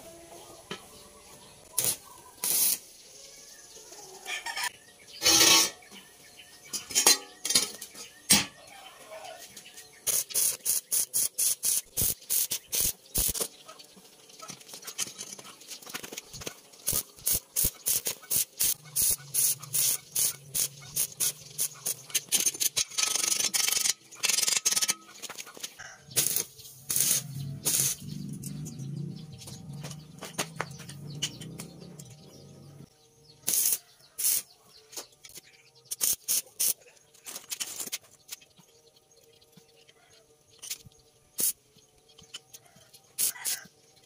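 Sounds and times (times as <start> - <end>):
welding arc crackling: 1.8 - 3.0, 10.0 - 13.5, 14.4 - 25.5, 26.1 - 28.8, 33.4 - 34.5, 35.9 - 36.8, 41.4 - 41.6.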